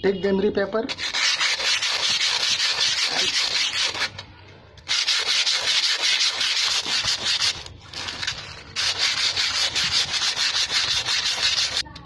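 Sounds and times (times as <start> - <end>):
sandpaper scrubbing metal drum: 0.9 - 4.2, 4.9 - 11.8.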